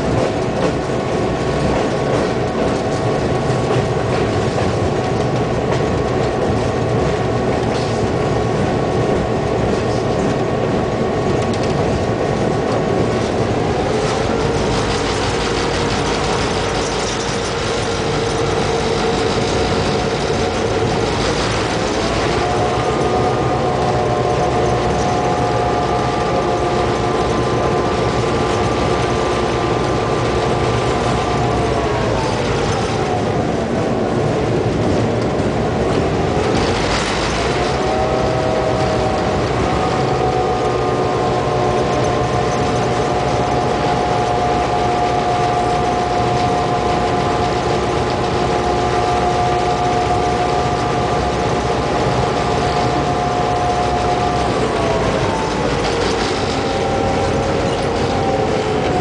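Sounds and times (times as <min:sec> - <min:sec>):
diesel locomotive engine humming: 0:00.0 - 0:59.0
train wheels rolling on track: 0:00.0 - 0:59.0.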